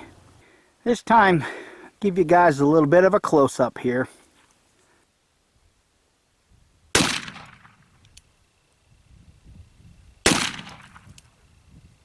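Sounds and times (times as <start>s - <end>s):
revolver gunshots: 6.9s - 8.0s, 10.2s - 11.2s
faint click: 8.0s - 8.3s.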